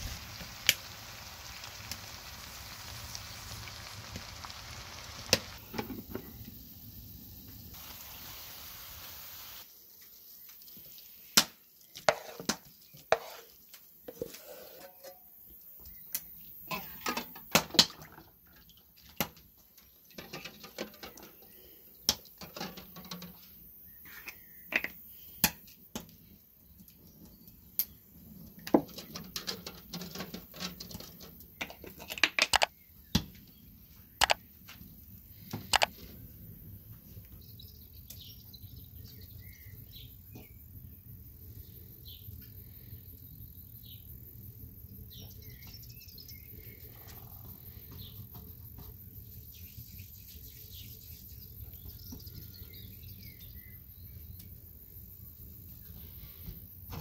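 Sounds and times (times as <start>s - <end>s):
faint bird chirps: 23.4s - 25.5s, 37.2s - 44.3s, 44.9s - 56.5s.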